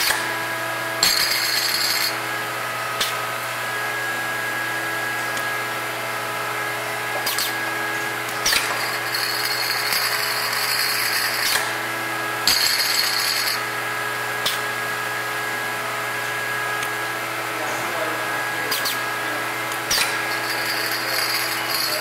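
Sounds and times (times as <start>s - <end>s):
machine hum: 0.0s - 22.0s.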